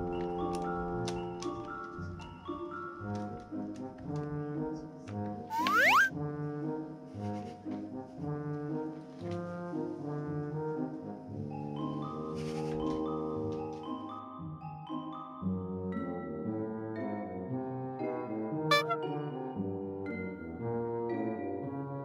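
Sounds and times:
light music with brass and mallets: 0.0 - 22.0
rising whistle sound effect: 5.5 - 6.1.

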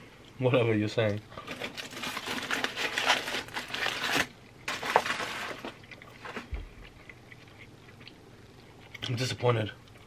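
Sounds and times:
aluminium foil crinkling: 1.4 - 6.6.

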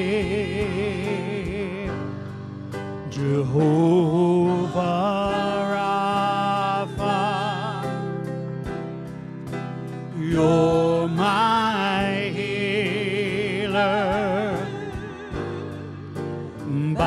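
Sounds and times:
person singing with vibrato: 0.0 - 2.2, 3.0 - 8.4, 10.1 - 17.0
sustained instrumental backing: 0.0 - 17.0.

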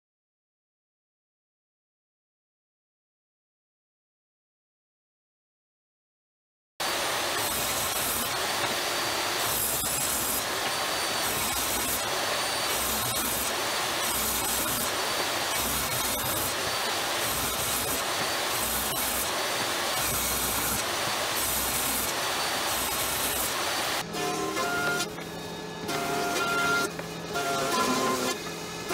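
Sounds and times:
table saw ripping wood: 6.8 - 25.2, 25.8 - 28.9.

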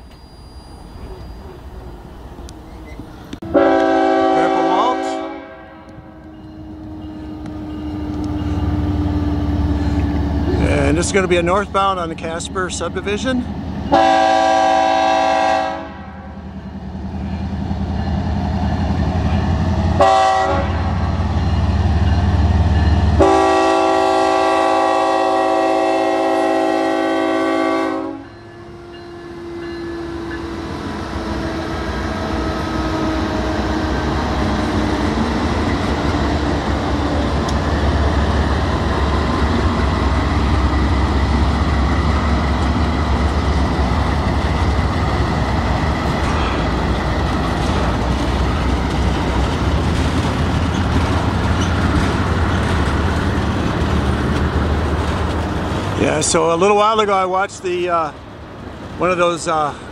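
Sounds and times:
train rumbling past: 0.0 - 59.9
locomotive air horn blasts: 3.4 - 6.2, 13.9 - 16.3, 20.0 - 21.0, 23.2 - 30.3.

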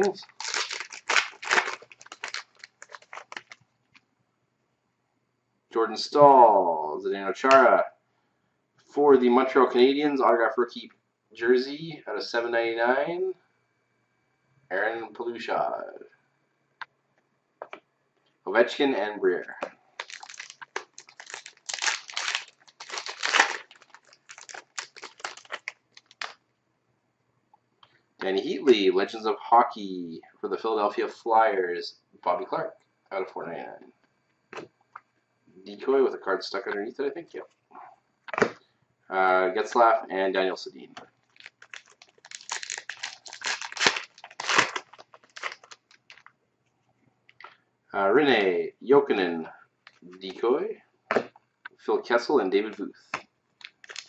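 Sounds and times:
wrapper tearing and crinkling: 0.0 - 3.6, 20.0 - 26.4, 41.2 - 46.3, 53.6 - 54.0.

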